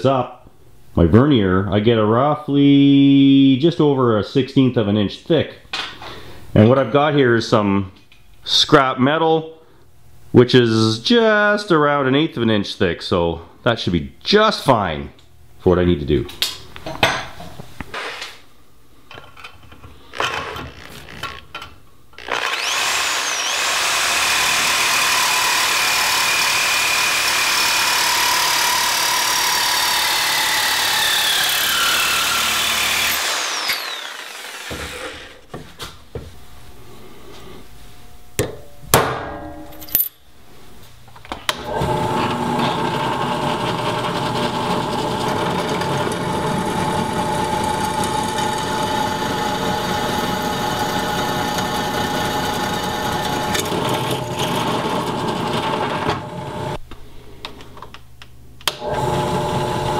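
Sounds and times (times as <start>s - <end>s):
drill press running: 22.2s - 35.4s, 41.5s - 56.8s, 58.7s - 59.9s
reciprocating saw cutting metal: 22.2s - 35.4s.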